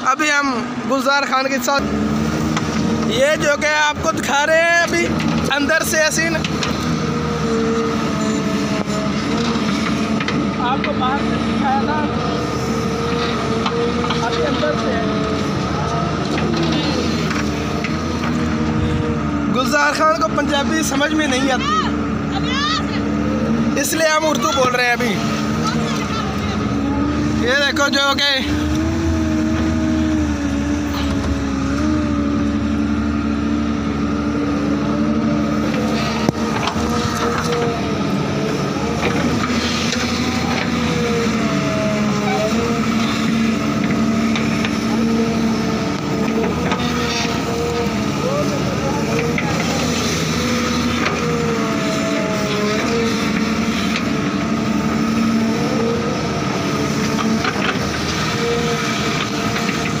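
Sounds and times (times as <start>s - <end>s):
excavator diesel engine droning: 0.0s - 60.0s.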